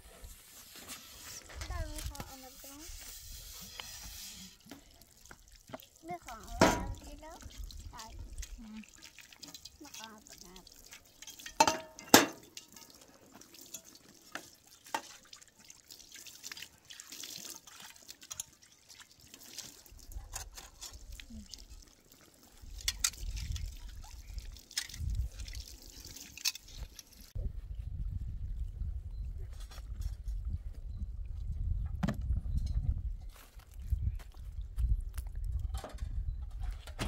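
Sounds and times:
water dripping and clicking: 4.6s - 27.4s, 35.0s - 36.1s.

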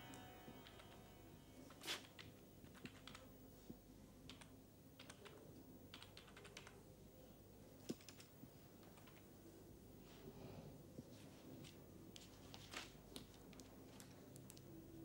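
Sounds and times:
keyboard tapping: 0.0s - 1.0s, 2.1s - 3.3s, 4.2s - 6.8s.

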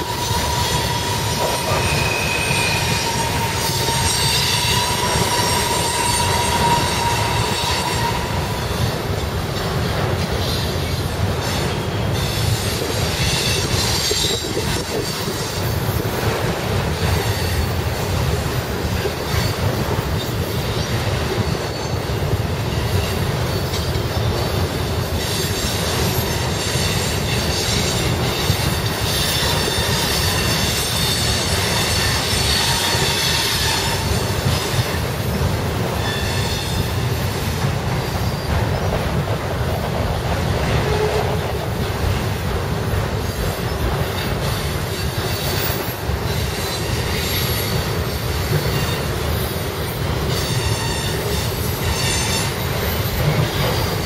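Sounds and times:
high-pitched wheel squeal: 0.0s - 8.9s, 11.5s - 15.6s, 25.2s - 35.0s, 36.0s - 37.0s, 50.3s - 53.9s
wind buffeting microphone: 0.0s - 50.4s
train wheels rumbling on rails: 0.0s - 54.0s.

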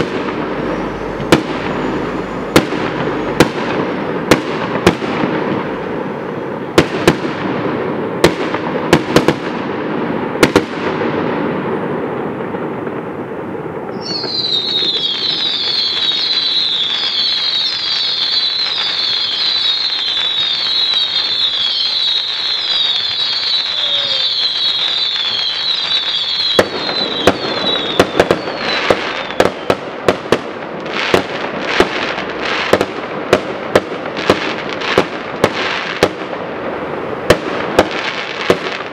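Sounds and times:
falling firework whistles: 0.0s - 5.2s, 13.8s - 33.0s
fireworks crackling: 0.0s - 38.9s
firework shells bursting: 13.9s - 36.4s.

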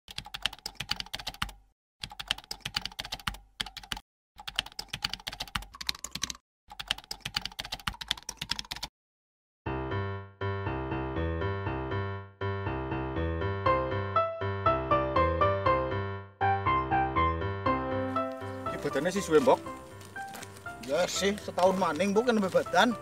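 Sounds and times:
keyboard typing clicks: 0.1s - 8.9s
music: 9.7s - 23.0s.

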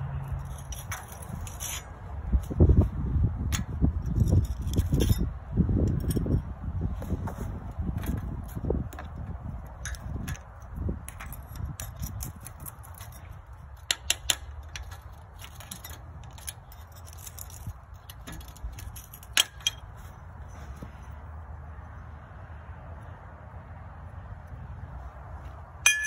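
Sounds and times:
steady low rumble: 0.0s - 26.0s
metallic clicks and clinks of tools: 0.2s - 1.9s, 3.5s - 6.5s, 8.0s - 20.0s.

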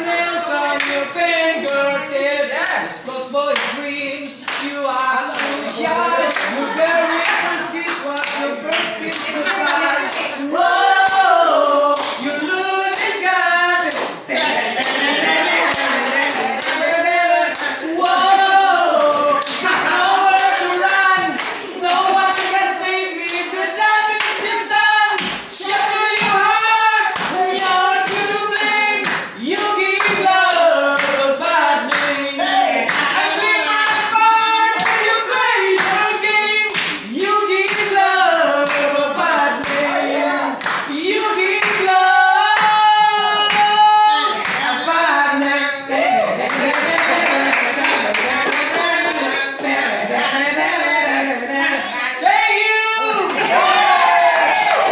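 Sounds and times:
men singing into microphones: 0.0s - 54.9s
audience clapping along: 4.5s - 14.2s, 14.8s - 39.0s, 40.6s - 43.8s, 46.2s - 49.8s, 53.2s - 54.9s.

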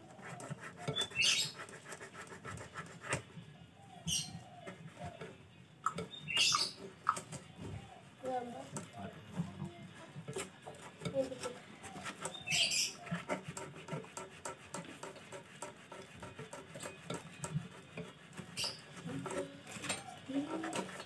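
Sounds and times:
cloth scratching copper pipe: 0.0s - 3.3s, 10.0s - 21.0s.

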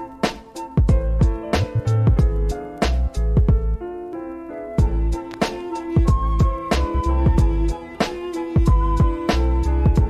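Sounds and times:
keyboard chords: 0.0s - 10.0s
kick drums: 0.8s - 2.6s, 3.2s - 3.8s, 4.8s - 5.2s, 6.0s - 6.7s, 7.3s - 7.7s, 8.6s - 9.3s.

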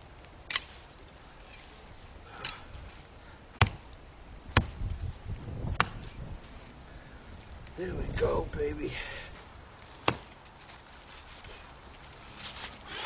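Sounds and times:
hatchet chopping wood: 3.6s - 3.8s, 4.5s - 4.8s, 10.0s - 10.3s.

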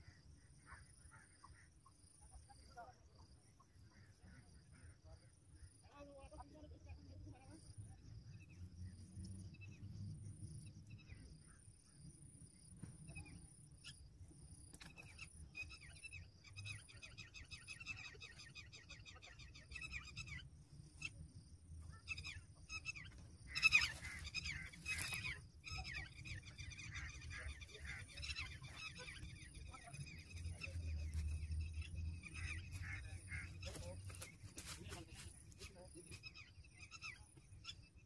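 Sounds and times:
birds chattering calls: 14.6s - 38.0s.

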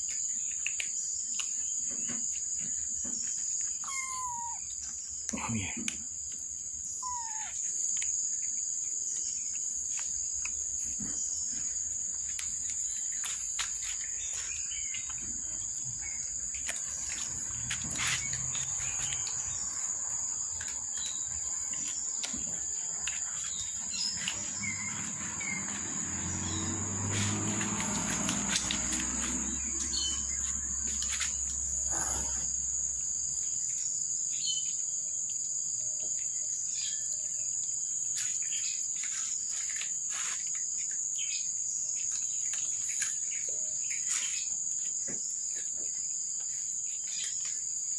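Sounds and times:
high insect drone: 2.0s - 47.9s
bird chirps: 3.6s - 5.8s, 7.0s - 8.6s, 20.9s - 32.3s
kittens chewing: 5.9s - 31.5s.

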